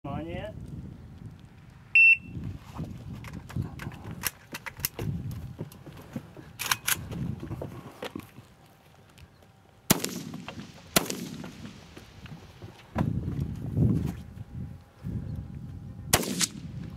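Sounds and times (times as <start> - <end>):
rifle shots with echo: 9.9 - 11.9, 16.1 - 16.8.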